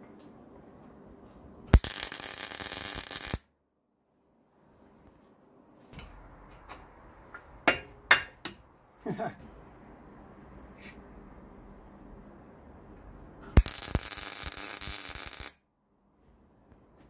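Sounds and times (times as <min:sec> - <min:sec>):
welder arc crackling: 0:01.7 - 0:03.5, 0:13.6 - 0:15.6.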